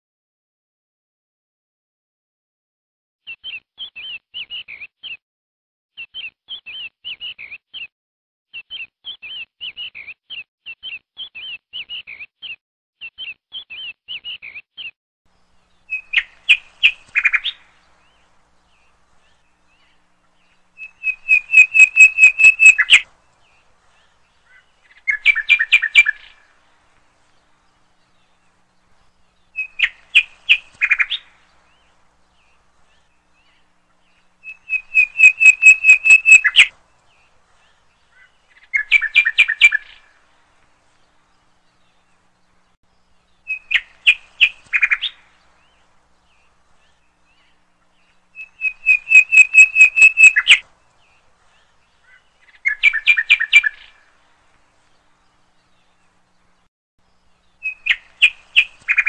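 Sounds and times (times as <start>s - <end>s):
loud bird calls: 15.4s - 56.6s, 57.2s - 59.0s.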